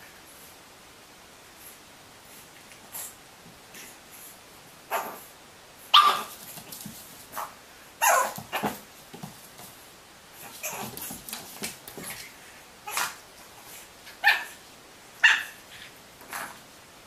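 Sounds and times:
puppy barking: 0:04.9 - 0:05.2, 0:05.9 - 0:06.3, 0:07.4 - 0:08.8, 0:14.2 - 0:14.6, 0:15.2 - 0:15.6.

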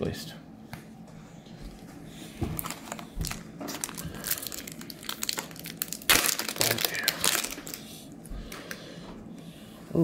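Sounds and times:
foil pack crinkling: 0:02.4 - 0:07.9
foil pack tearing open: 0:02.6 - 0:07.8.

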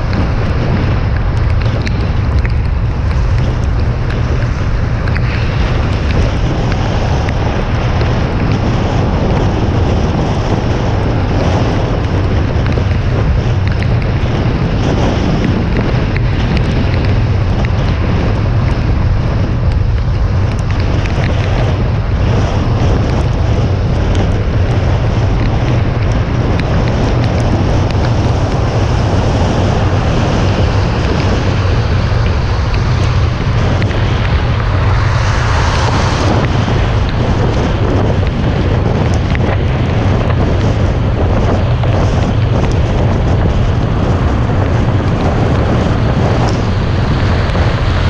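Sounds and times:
deep rumble: 0:00.0 - 0:48.0
wind buffeting camera: 0:00.0 - 0:48.0
tyres hissing on wet road: 0:00.2 - 0:10.4, 0:28.0 - 0:37.6.

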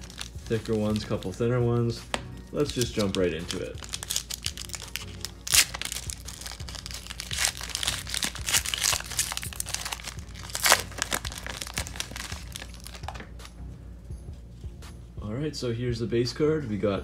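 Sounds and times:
foil wrapper crackling: 0:00.0 - 0:01.6, 0:02.6 - 0:13.4.

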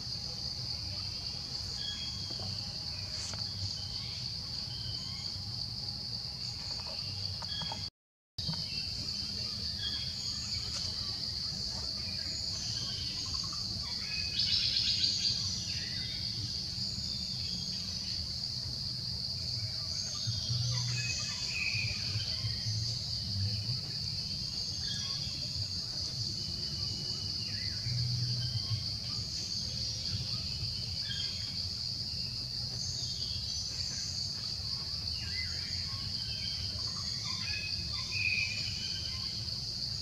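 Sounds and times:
insect chorus buzzing: 0:00.0 - 0:40.0.

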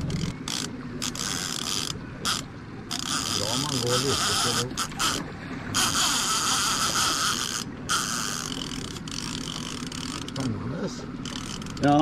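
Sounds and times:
fishing reel ratchet buzzing: 0:00.1 - 0:10.6, 0:11.2 - 0:12.0.

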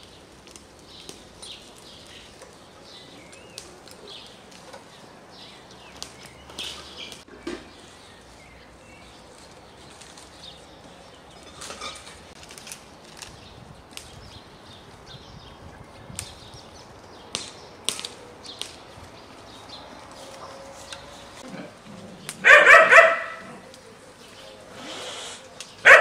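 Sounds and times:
small birds chirping: 0:00.0 - 0:26.0
stems and leaves rustling: 0:00.0 - 0:26.0.

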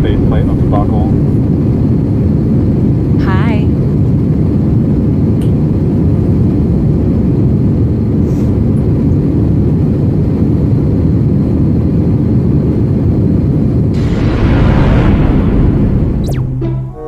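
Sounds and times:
airplane cabin rumble: 0:00.0 - 0:17.0.

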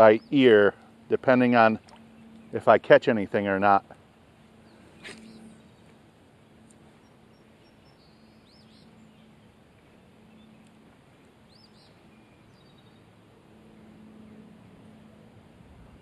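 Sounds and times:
small birds chirping: 0:00.0 - 0:00.9, 0:04.6 - 0:06.0, 0:06.7 - 0:13.2
faint outdoor hiss: 0:00.0 - 0:16.0.

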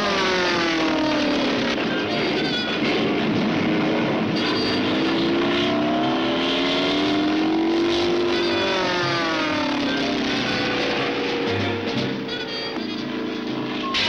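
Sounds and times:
cartoon engine pitch rising: 0:04.6 - 0:12.7.

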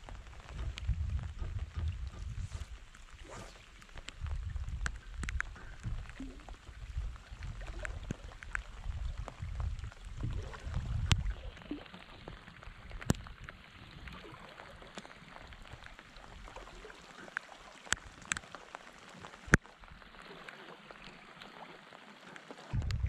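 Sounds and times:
low rumble: 0:00.0 - 0:11.5, 0:22.7 - 0:23.0
rain falling on a lake: 0:00.0 - 0:23.0
raindrops ticking close by: 0:00.0 - 0:23.0.

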